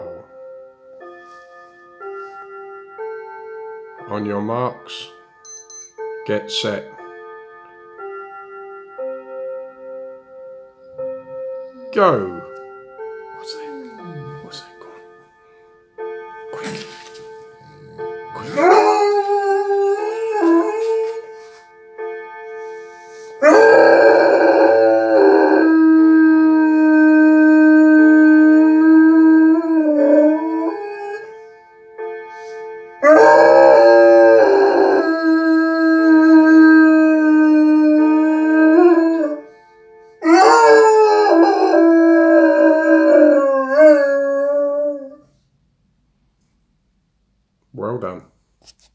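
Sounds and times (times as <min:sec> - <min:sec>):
dog howling: 0:23.4 - 0:31.2, 0:40.2 - 0:45.2.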